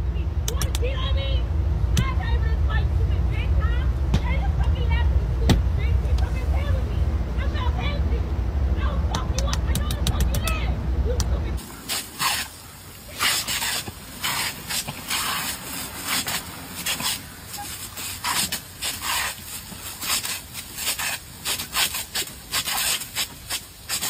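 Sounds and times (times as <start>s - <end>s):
water sprinkler jetting: 9.1s - 24.0s
dogs biting at spray: 11.6s - 24.0s.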